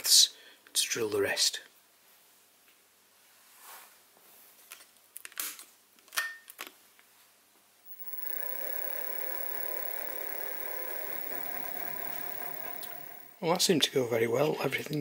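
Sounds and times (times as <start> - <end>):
mill spindle motor whine: 7.9 - 13.4.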